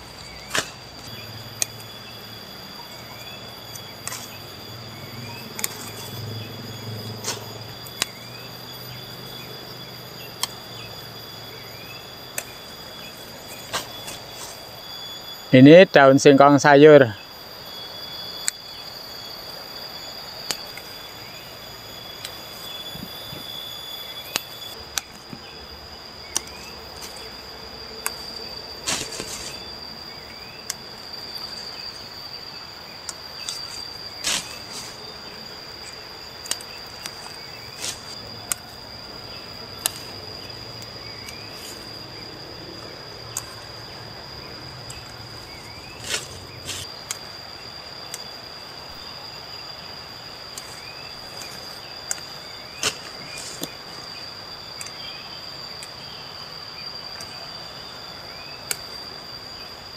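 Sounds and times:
leaf rustling: 0.0s - 8.5s, 9.4s - 14.9s, 22.2s - 55.0s
high-pitched insect trill: 0.0s - 59.9s
leaf stalks snapping: 0.1s - 1.8s, 5.6s - 6.2s, 13.3s - 14.6s, 28.0s - 29.7s, 33.0s - 38.7s, 39.7s - 41.8s, 44.8s - 47.2s, 50.5s - 53.9s.

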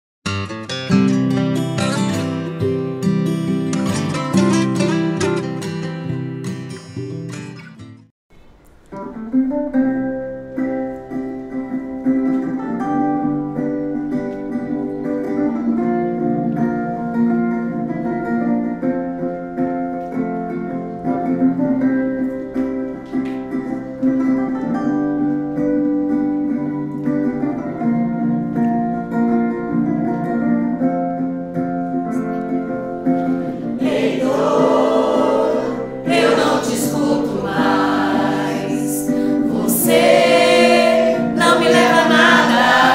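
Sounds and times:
musical accompaniment: 0.3s - 42.9s
choir singing: 33.3s - 42.9s.

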